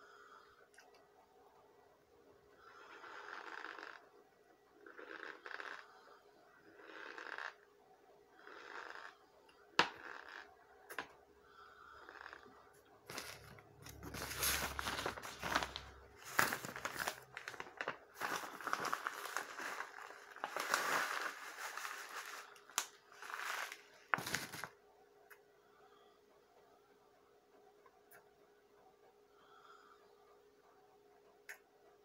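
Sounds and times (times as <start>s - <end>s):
wrapper crinkling and rustling: 13.1s - 24.8s.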